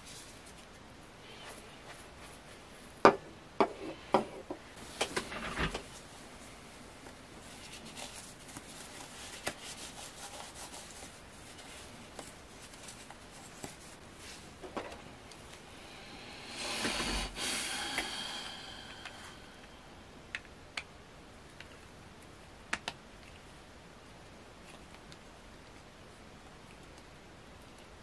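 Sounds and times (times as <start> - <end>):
cloth rubbing plastic parts: 4.8 - 15.6.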